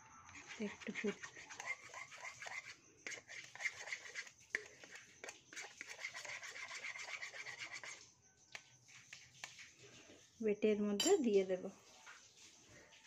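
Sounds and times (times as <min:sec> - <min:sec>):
knife scraping inside a bowl: 0:00.3 - 0:08.1.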